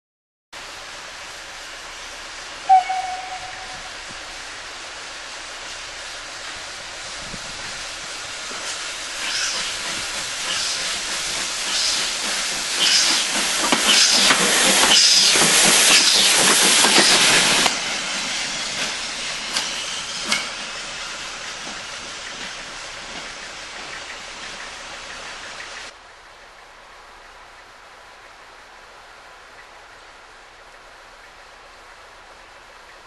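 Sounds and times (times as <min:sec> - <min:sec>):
steam hissing: 0:00.6 - 0:26.0
steam whistle toot: 0:02.6 - 0:04.5.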